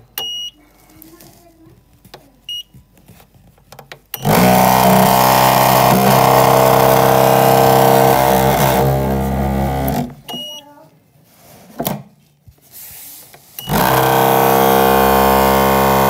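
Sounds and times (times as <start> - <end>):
amalgamator motor buzzing hum: 4.2 - 10.2, 13.6 - 16.0.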